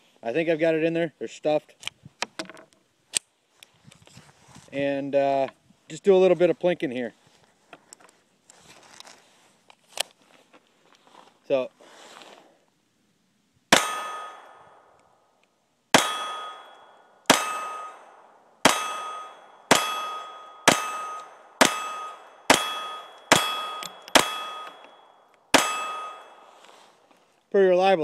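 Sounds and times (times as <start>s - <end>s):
metallic clang from steel target: 13.7s - 14.9s, 16.0s - 26.5s
pistol shots: 13.7s - 14.9s, 15.9s - 24.9s, 25.5s - 26.4s.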